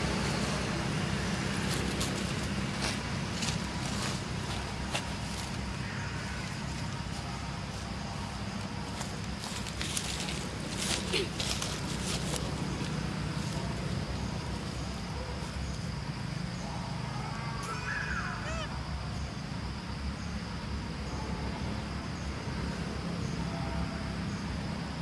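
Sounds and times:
high insect drone: 0:00.0 - 0:25.0
gliding animal calls: 0:17.1 - 0:18.8.

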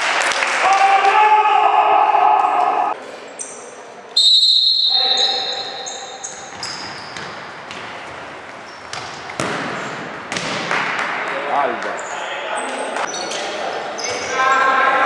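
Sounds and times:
shoes squeaking on court: 0:05.0 - 0:10.1, 0:11.7 - 0:14.7
ball thumping on wooden floor: 0:08.9 - 0:11.0.

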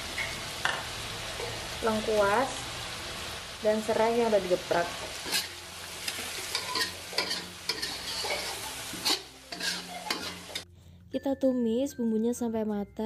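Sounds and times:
paste sizzling in hot oil: 0:00.0 - 0:10.7
metal spatula scraping a wok: 0:05.0 - 0:10.7.

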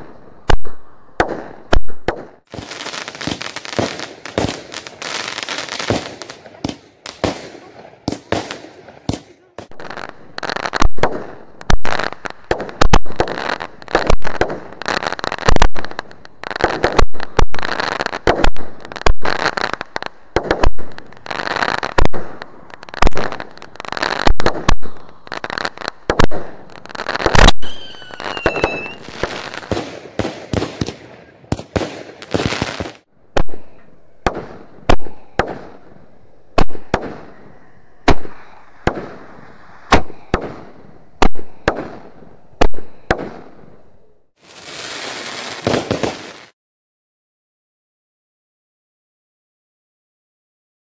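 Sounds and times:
fireworks bangs and crackling: 0:00.0 - 0:46.6
whistling firework: 0:24.1 - 0:35.7, 0:36.6 - 0:42.0, 0:44.4 - 0:46.6.

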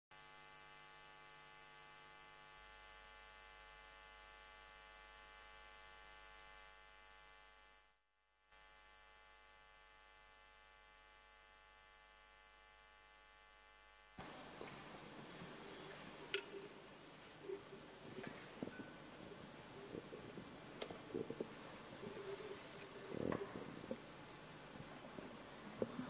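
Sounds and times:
faint electrical hum: 0:08.6 - 0:26.0.

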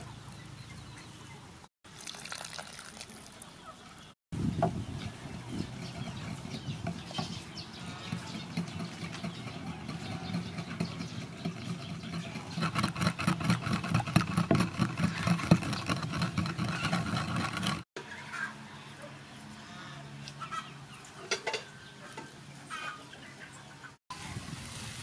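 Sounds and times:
pestle pounding in wooden mortar: 0:05.6 - 0:17.8.

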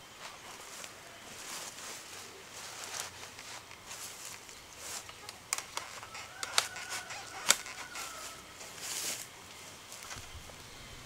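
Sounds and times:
faint drawn-out call: 0:04.9 - 0:08.6
bamboo shoots knocking together: 0:05.0 - 0:08.2.

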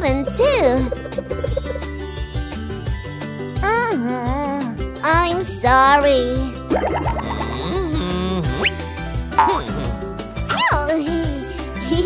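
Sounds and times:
cartoon music with tinkling notes: 0:00.0 - 0:04.7, 0:10.8 - 0:12.0
cartoon character voice: 0:10.5 - 0:11.2.

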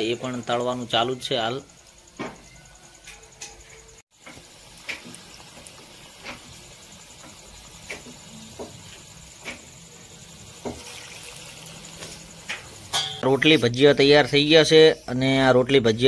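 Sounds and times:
fritters deep-frying in oil: 0:00.0 - 0:13.9
sharp pops and crackles: 0:03.0 - 0:13.2.

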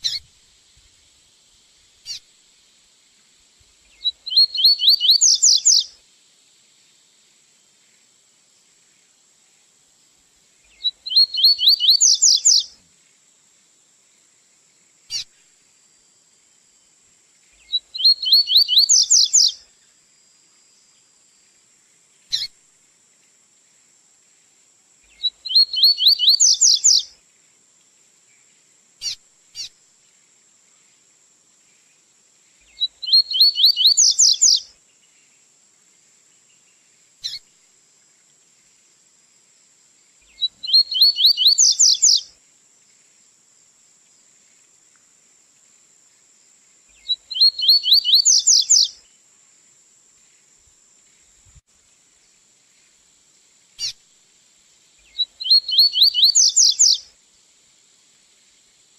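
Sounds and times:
bird song of rapid rising notes: 0:04.0 - 0:05.9, 0:10.7 - 0:12.7, 0:17.7 - 0:19.6, 0:25.2 - 0:27.1, 0:32.7 - 0:34.6, 0:40.3 - 0:42.2, 0:47.0 - 0:48.9, 0:55.1 - 0:57.0.

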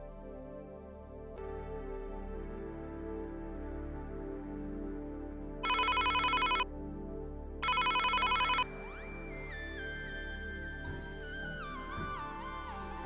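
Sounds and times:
soft background music: 0:00.0 - 0:13.0
warbling phone ring tone: 0:05.6 - 0:06.6, 0:07.6 - 0:08.6.

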